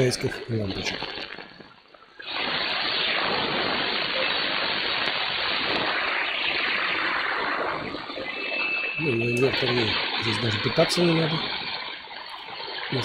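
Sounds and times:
radio receiver band noise hiss: 0.0s - 13.0s.

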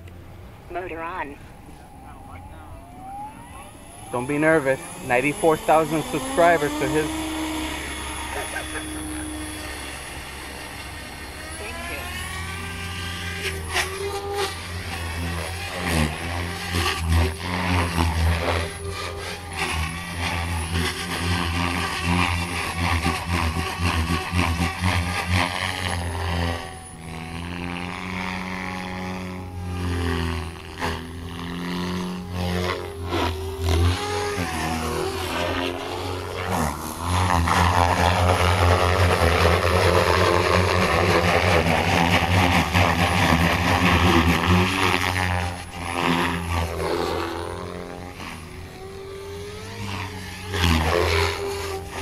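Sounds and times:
rotor blades whooshing: 0.0s - 52.0s
whine of motor and gears: 0.0s - 52.0s.

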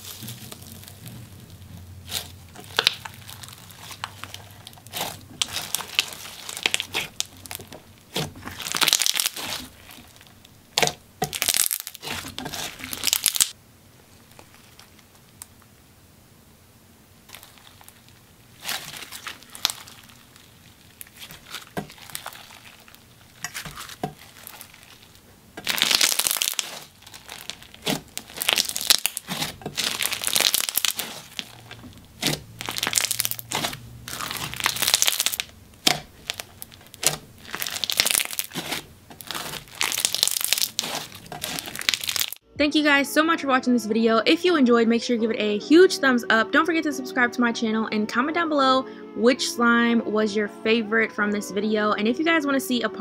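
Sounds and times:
slime crackling and popping: 0.0s - 13.6s, 14.2s - 15.6s, 17.2s - 42.4s.

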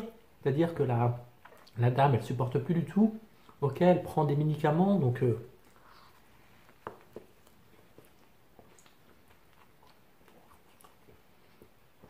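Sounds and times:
man chewing food: 1.3s - 1.8s, 5.5s - 12.0s
soft mouth clicks: 6.7s - 11.8s.

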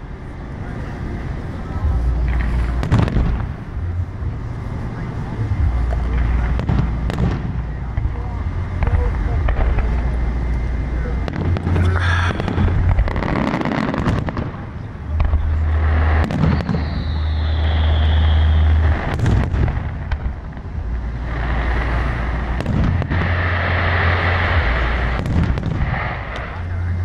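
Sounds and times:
fireworks bangs: 0.8s - 27.0s
deep booming rumble: 1.8s - 27.0s
descending firework whistle: 11.3s - 20.3s.

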